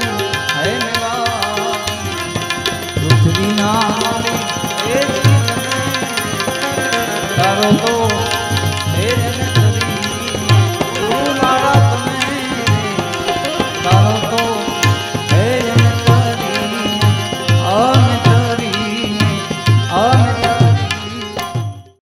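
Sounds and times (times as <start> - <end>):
harmonium: 0.0 - 22.0.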